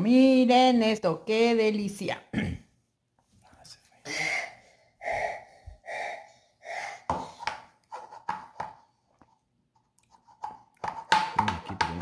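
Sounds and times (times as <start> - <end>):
person breathing out in puffs: 4.0 - 7.6.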